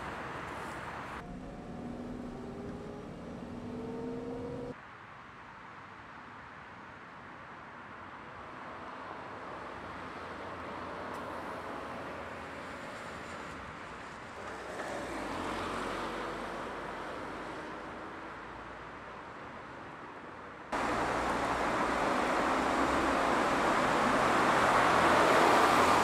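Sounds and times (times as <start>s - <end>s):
car driving past: 0.0s - 4.8s, 20.8s - 26.0s.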